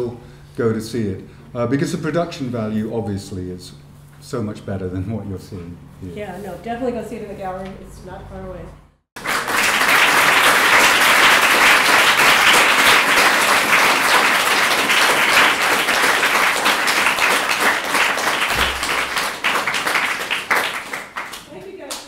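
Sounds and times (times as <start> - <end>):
audience applauding: 9.2 - 21.5.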